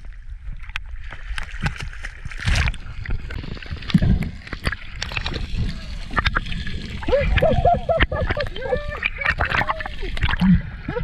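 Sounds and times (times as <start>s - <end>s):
small clicks and bubbles: 0.0s - 11.0s
seawater slapping and splashing: 1.2s - 5.5s.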